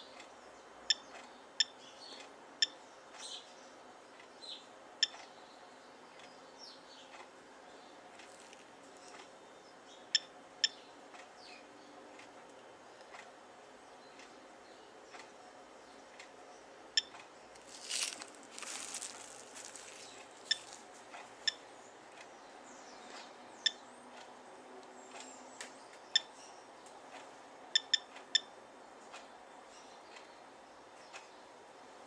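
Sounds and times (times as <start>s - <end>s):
plastic film rustling: 17.6s - 21.0s
dosimeter chirps: 17.8s - 20.8s, 27.8s - 28.5s.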